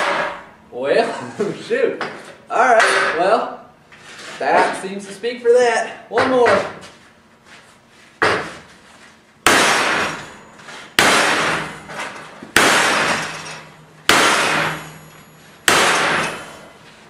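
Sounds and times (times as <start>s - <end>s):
hammer clanging on steel: 2.7s - 3.3s, 9.5s - 16.7s.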